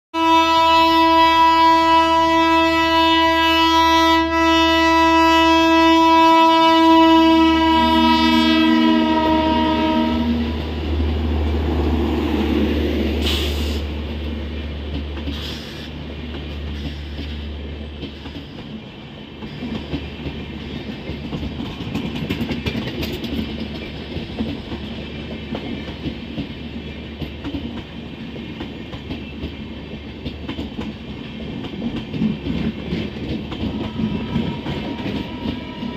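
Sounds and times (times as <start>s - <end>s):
locomotive air horn: 0.2s - 10.6s, 33.6s - 35.9s
train rumble: 0.2s - 35.9s
wheels clacking over rail joints: 10.0s - 35.9s.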